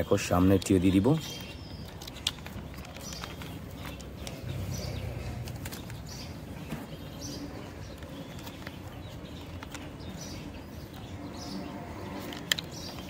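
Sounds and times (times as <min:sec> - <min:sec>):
bird calls: 0:00.0 - 0:13.0
plastic toy wheels clicking: 0:00.4 - 0:04.8, 0:07.8 - 0:10.6, 0:12.1 - 0:13.0.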